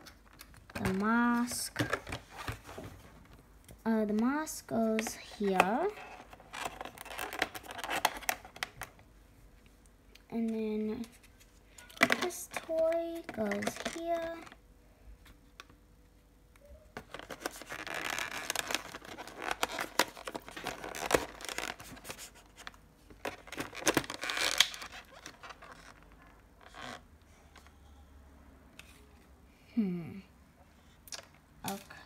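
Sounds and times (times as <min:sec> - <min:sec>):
plastic packaging crinkling: 0:05.0 - 0:09.0, 0:11.0 - 0:14.6, 0:17.0 - 0:27.0.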